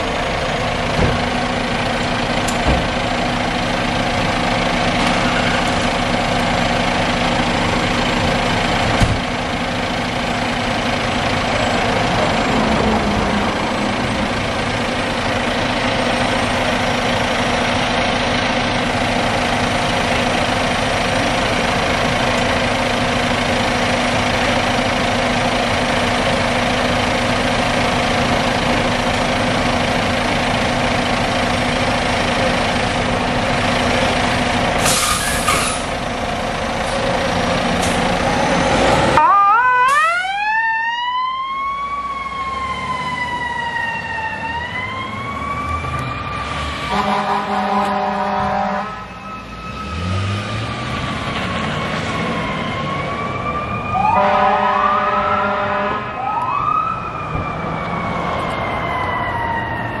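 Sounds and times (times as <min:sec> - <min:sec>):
fire engine diesel running: 0:00.0 - 1:00.0
short air hiss: 0:34.8 - 0:35.8
siren wailing: 0:38.9 - 0:51.0, 0:51.6 - 1:00.0
air horn blasts: 0:46.9 - 0:49.1, 0:54.0 - 0:56.2.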